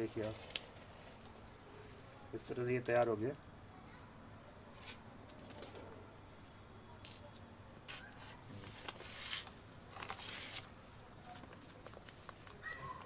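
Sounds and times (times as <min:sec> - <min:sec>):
rustling of dry leaves and pots: 0:00.0 - 0:06.1, 0:06.9 - 0:13.0
faint bird chirps: 0:03.8 - 0:04.2.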